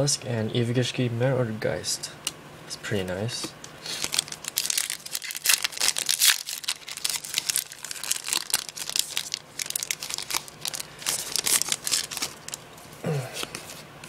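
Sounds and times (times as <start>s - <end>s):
foil wrapper crinkling: 3.8s - 12.9s.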